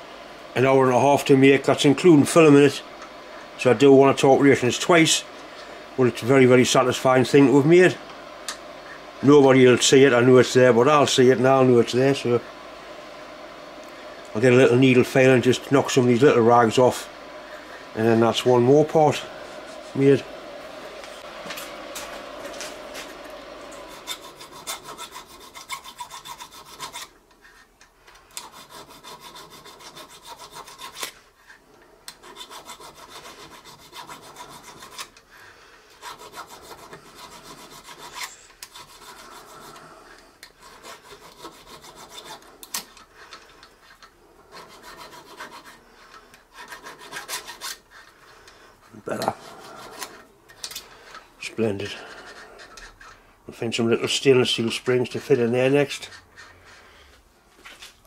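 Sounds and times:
file rasping on metal: 23.8 - 27.7, 28.3 - 35.2, 36.0 - 48.3, 49.1 - 50.3, 51.8 - 53.2.

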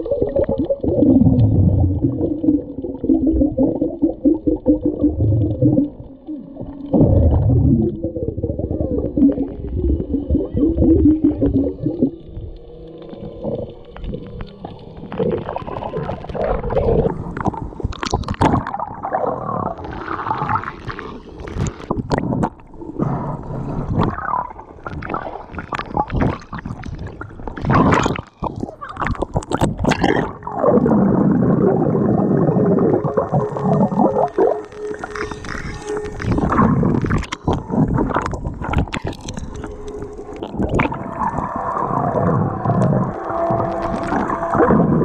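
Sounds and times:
underwater gurgling and rumbling: 0.0 - 45.0
sharp underwater clicks and knocks: 13.8 - 18.8
water rushing: 23.8 - 45.0.

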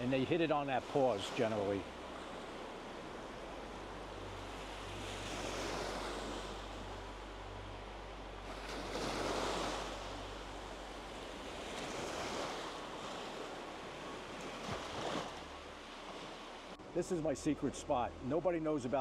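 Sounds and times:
small surf breaking on beach: 0.0 - 7.1, 8.4 - 17.1.

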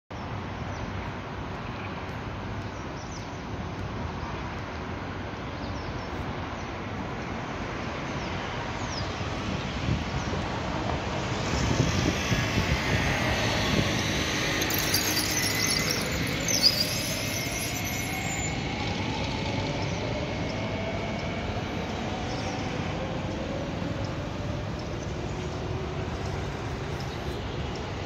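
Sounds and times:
electric train passing: 6.8 - 28.0.

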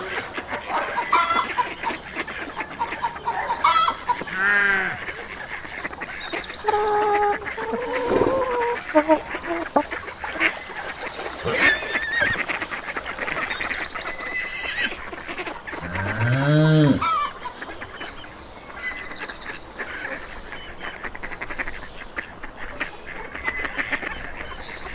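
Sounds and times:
ducks quacking: 0.0 - 24.9
geese honking: 0.0 - 24.9
low drawn-out animal call: 6.6 - 9.8, 15.7 - 17.3.

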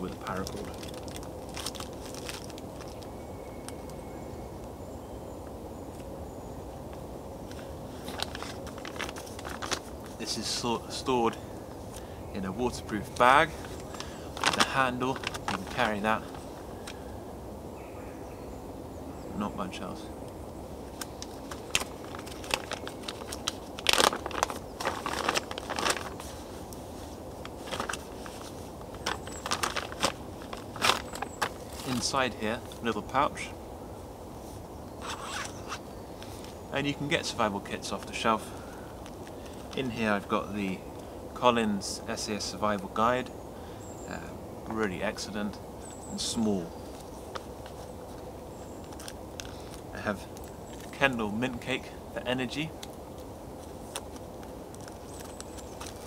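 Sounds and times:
small items clicking and rustling: 0.0 - 4.0, 7.5 - 10.3, 13.1 - 17.0, 20.9 - 32.8, 46.8 - 51.0, 52.8 - 56.0.

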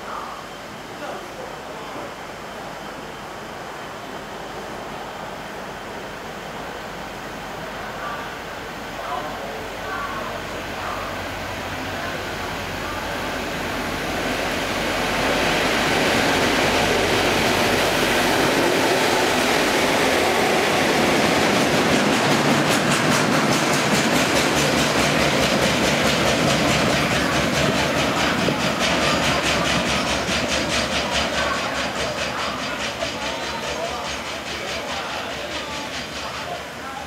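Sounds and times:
diesel locomotives passing: 0.0 - 37.0
wheels clattering on rails: 15.7 - 37.0.

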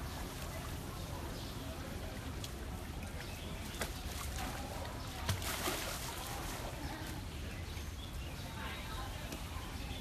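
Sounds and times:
water splash: 3.7 - 6.6.

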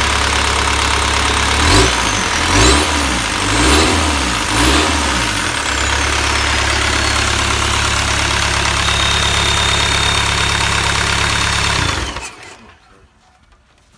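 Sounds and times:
diesel engine idling: 0.0 - 13.1
high turbo whistle: 5.7 - 12.3.

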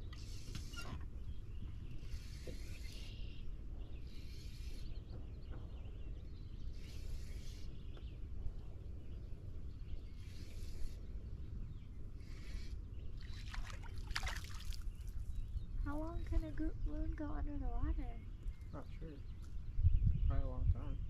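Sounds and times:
wind rumbling on microphone: 0.0 - 21.0
small waves lapping against boat hull: 13.2 - 15.4.

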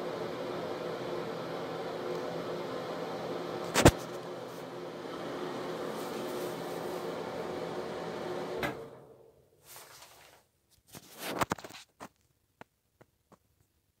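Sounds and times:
exhaust fan whooshing and humming: 0.0 - 10.3.

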